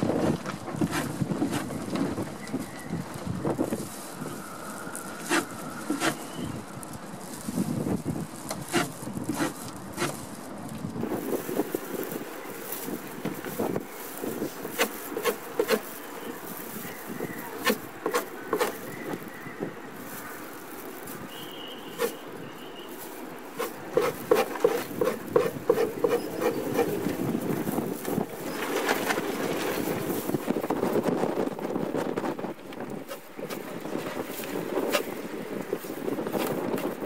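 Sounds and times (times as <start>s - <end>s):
hand scraper scraping hide: 0.8s - 1.7s, 5.2s - 6.4s, 8.6s - 10.2s, 14.5s - 16.0s, 17.5s - 18.9s, 22.0s - 22.2s, 23.6s - 27.2s.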